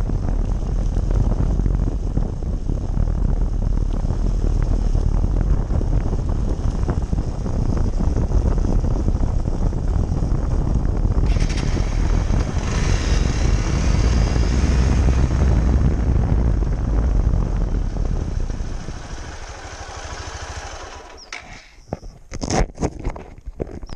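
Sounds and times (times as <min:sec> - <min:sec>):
wind and road noise rumble: 0:00.0 - 0:23.9
tyre hiss on wet road: 0:18.4 - 0:21.1.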